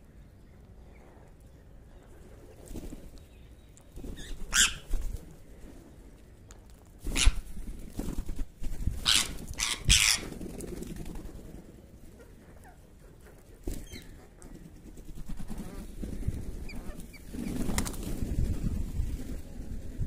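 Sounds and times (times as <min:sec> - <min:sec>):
harsh bird calls: 0:03.4 - 0:05.0, 0:09.0 - 0:10.3.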